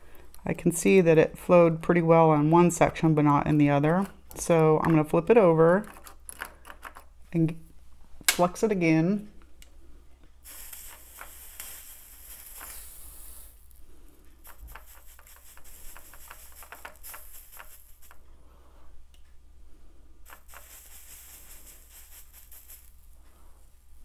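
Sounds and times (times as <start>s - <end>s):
small brush scratching: 10.5s - 13.8s, 14.4s - 18.2s, 20.3s - 23.2s.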